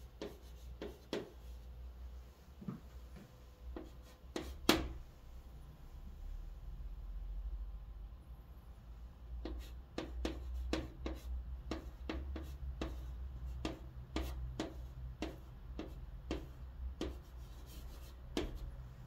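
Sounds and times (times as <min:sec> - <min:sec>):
chalk writing on chalkboard: 0:00.0 - 0:01.7, 0:03.7 - 0:05.0, 0:09.4 - 0:18.8.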